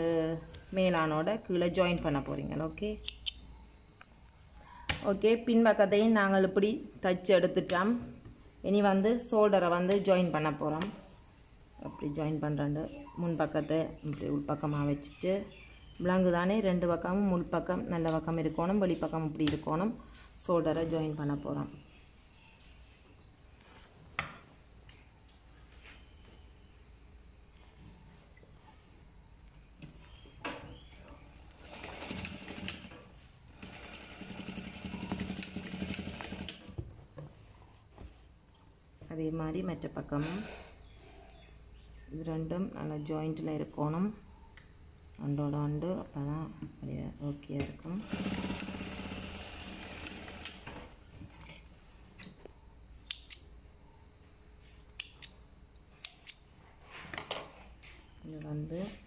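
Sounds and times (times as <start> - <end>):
sewing machine stitching: 31.6 - 36.7, 48.0 - 50.8.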